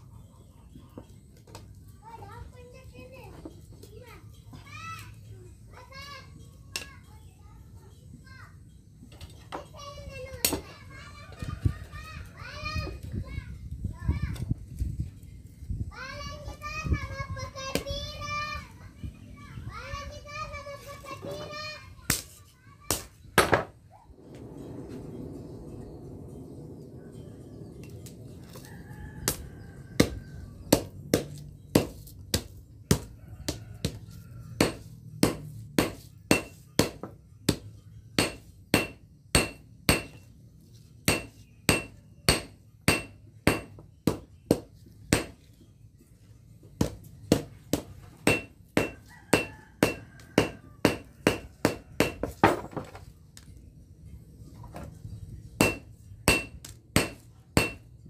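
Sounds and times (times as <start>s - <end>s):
hammer striking metal on anvil: 34.6s - 40.3s, 41.0s - 45.4s, 47.3s - 52.3s, 55.6s - 57.9s.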